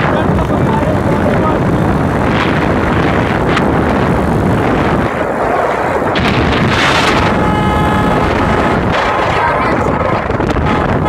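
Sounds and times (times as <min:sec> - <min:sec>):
wind buffeting microphone: 0:00.0 - 0:11.0
high pitched tone: 0:06.8 - 0:09.8.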